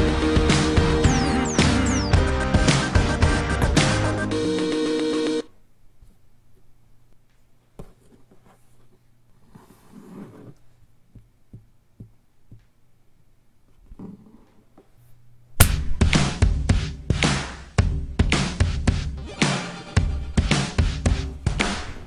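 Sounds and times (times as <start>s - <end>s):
loud music: 0.0s - 5.5s, 15.6s - 22.0s.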